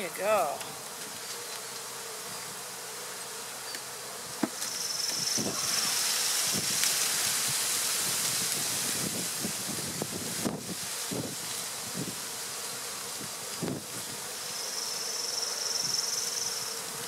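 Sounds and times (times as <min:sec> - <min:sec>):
bees buzzing: 0:00.0 - 0:17.0
loud hiss: 0:04.4 - 0:16.8.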